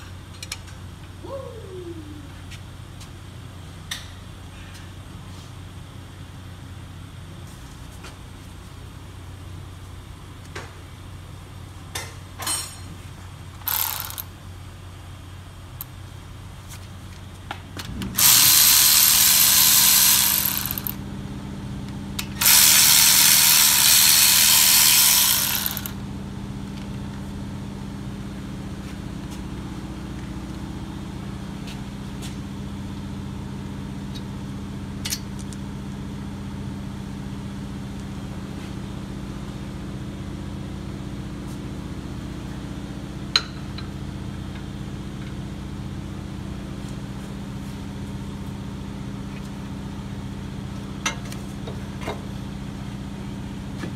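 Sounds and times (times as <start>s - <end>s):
steady low hum: 0.0s - 53.9s
electric ratchet whirring: 13.6s - 14.3s, 18.1s - 21.0s, 22.2s - 26.0s.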